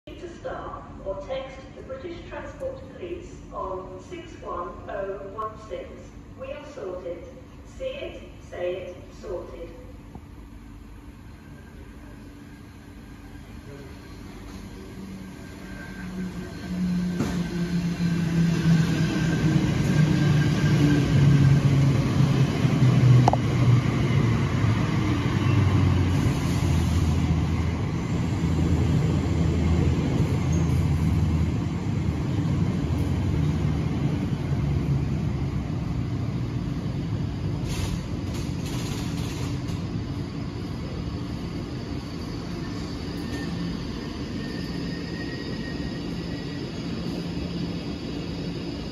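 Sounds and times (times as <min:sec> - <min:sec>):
train wheels rumbling on rails: 0:13.7 - 0:48.9.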